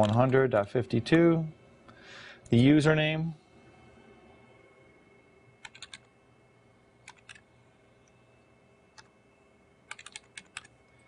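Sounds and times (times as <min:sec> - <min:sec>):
faint steady hum: 0:00.0 - 0:11.0
computer keyboard keystrokes: 0:05.6 - 0:06.1, 0:07.0 - 0:07.4, 0:09.9 - 0:10.7.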